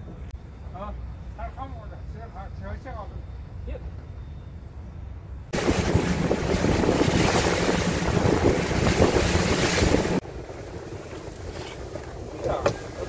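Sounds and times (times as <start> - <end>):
boat engine running: 5.5 - 13.0
wind buffeting microphone: 5.5 - 13.0.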